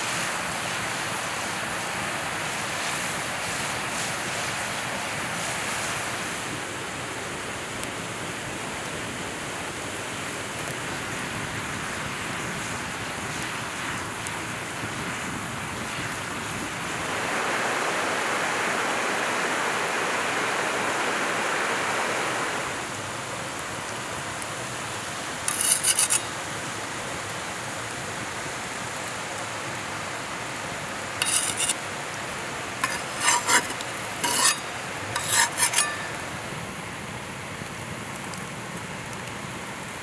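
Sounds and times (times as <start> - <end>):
wood fire hissing: 0.0 - 40.0.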